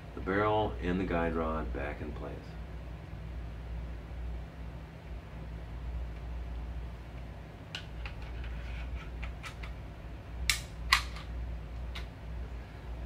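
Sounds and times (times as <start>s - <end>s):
pistol slide metal clicks: 10.5s - 11.3s.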